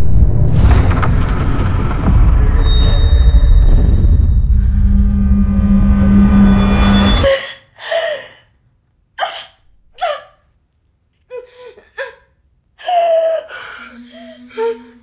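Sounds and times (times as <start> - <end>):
low musical drone: 4.4 - 7.3
woman gasping and moaning: 7.2 - 8.6, 9.2 - 10.4, 11.3 - 15.0.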